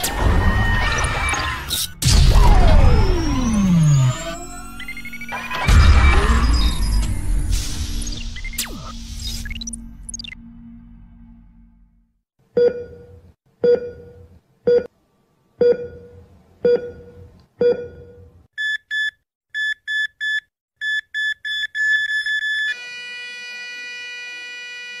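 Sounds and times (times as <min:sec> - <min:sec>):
electronic beeps into held tone: 0:18.6 - 0:22.8.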